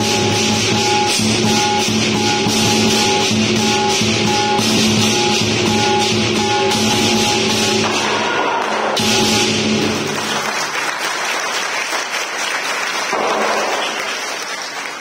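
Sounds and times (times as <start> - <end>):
cymbal crash: 0.0 - 10.2
drum cymbals and gong percussion: 0.0 - 10.4
audience applause: 9.8 - 15.0.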